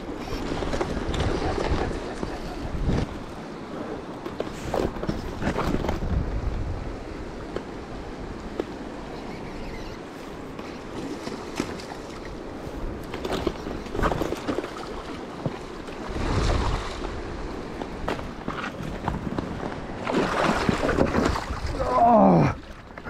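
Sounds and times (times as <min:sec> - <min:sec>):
wind on microphone: 0:00.0 - 0:03.4, 0:04.7 - 0:10.0, 0:12.1 - 0:22.8.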